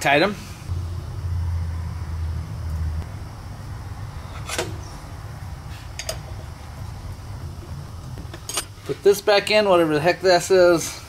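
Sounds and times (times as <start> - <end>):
low hum: 0.4 - 9.0.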